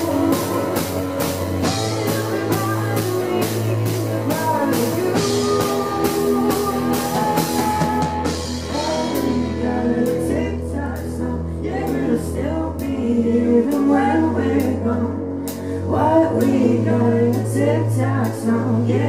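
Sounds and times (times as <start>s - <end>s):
drums and cymbals: 0.0s - 10.2s
bass line: 0.0s - 19.0s
keyboard: 0.0s - 19.0s
woman singing: 0.0s - 19.0s.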